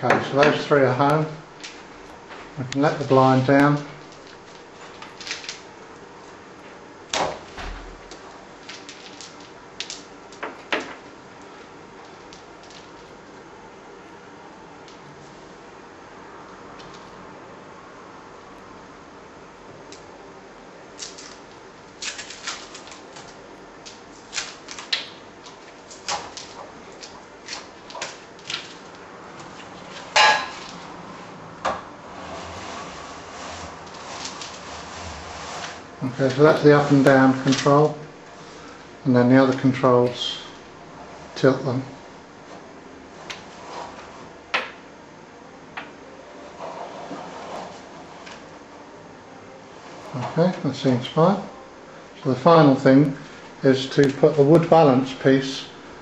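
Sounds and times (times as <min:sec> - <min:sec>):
wooden blind slats clicking: 0:31.6 - 0:38.0.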